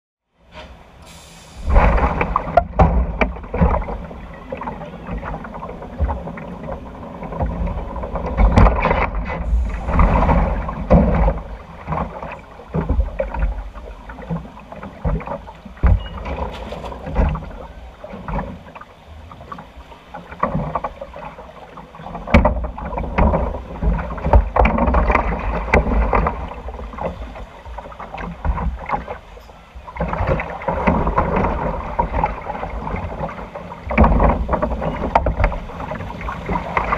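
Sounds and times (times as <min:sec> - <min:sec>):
rushing sloshing water: 0:00.4 - 0:36.9
low thumps and rumbling: 0:01.5 - 0:21.4, 0:22.0 - 0:36.9.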